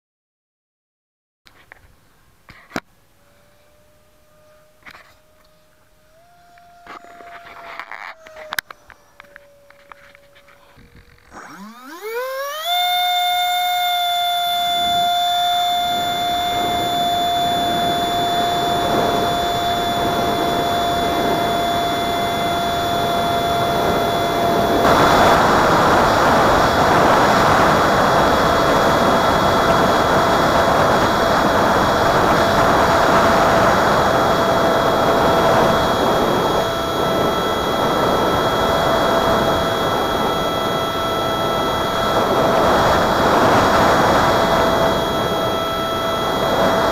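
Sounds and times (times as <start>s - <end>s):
ducted fan high-pitched whine: 1.5s - 46.9s
wind noise rushing: 15.7s - 46.9s.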